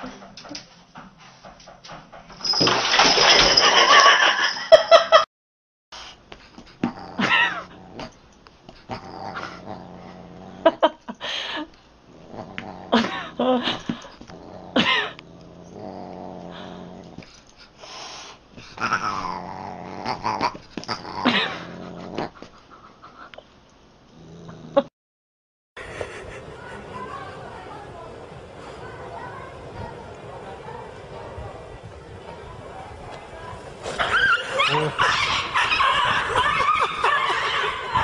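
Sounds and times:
dog growling: 6.7 - 8.2, 8.8 - 11.0, 12.1 - 17.4, 18.6 - 22.5, 24.1 - 24.9, 33.3 - 38.0
animals scuffling: 32.4 - 36.4.

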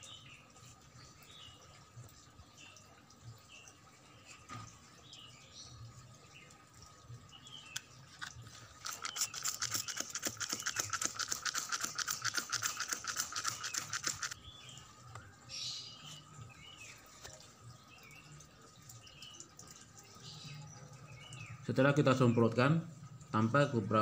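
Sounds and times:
spray bottle squirts: 8.2 - 14.4.

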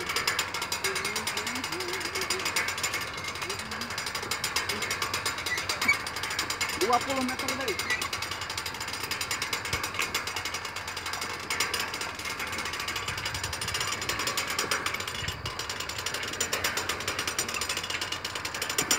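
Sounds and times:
winch ratchet clicking: 0.0 - 18.9.

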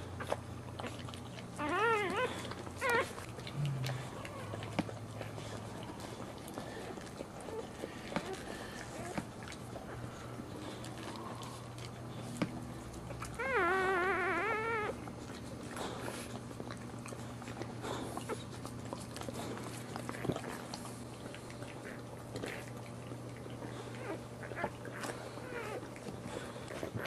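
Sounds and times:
steady low hum: 0.0 - 27.0
faint squeaks and clicks: 1.6 - 5.6, 23.7 - 27.0
puppy crying: 1.6 - 9.2, 13.1 - 15.0, 23.6 - 26.2.

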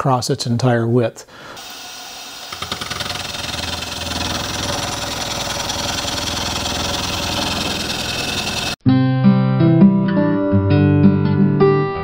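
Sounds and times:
milling machine cutting steel: 1.6 - 8.8.

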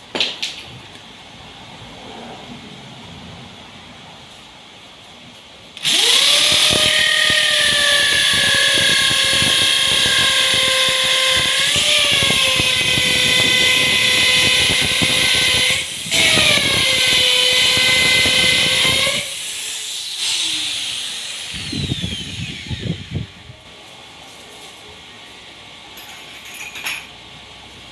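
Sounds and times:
electric drill boring into wood: 5.8 - 23.4.

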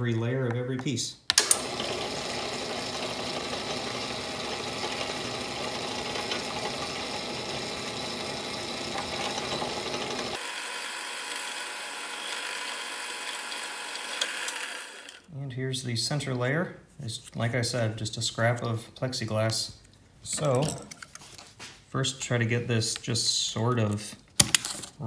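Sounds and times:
drill press motor whirring: 1.3 - 15.3.

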